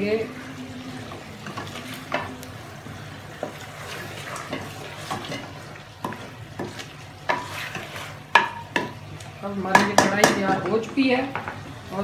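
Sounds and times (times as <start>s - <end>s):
meat sizzling: 0.0s - 12.0s
spatula scraping metal pan: 3.4s - 8.8s.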